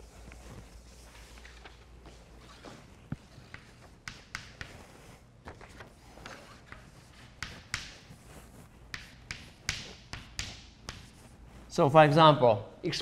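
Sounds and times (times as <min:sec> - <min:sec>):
chalk scratching on blackboard: 0:00.4 - 0:11.6
chalk tapping on blackboard: 0:03.1 - 0:11.4.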